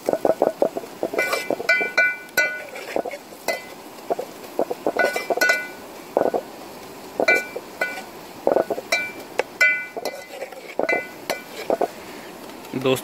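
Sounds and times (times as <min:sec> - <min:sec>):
ladle stirring and scraping in pot: 0:00.0 - 0:12.0
ladle clinking against pot: 0:00.1 - 0:02.8, 0:03.5 - 0:03.7, 0:05.0 - 0:05.8, 0:07.2 - 0:11.5.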